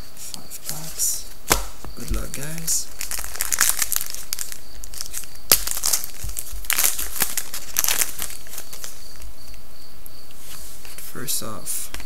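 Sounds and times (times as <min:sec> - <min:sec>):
wrapper snap: 0:01.5 - 0:02.2, 0:03.0 - 0:09.0
wrapper crinkling: 0:02.0 - 0:09.2.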